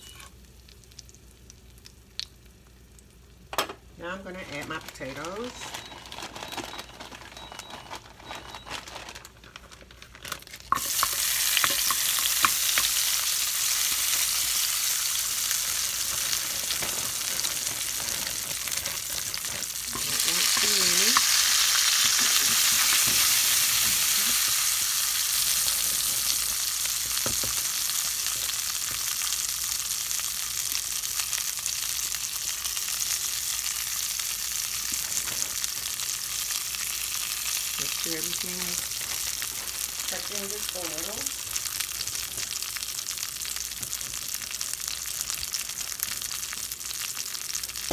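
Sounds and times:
fries sizzling in hot oil: 0.0 - 3.4, 10.4 - 47.9.

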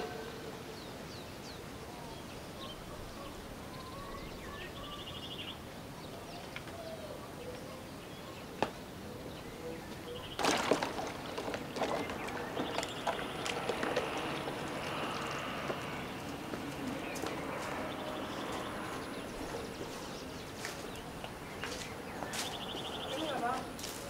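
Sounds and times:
small birds chirping: 0.0 - 24.0
knocks and clatter: 10.3 - 15.8.

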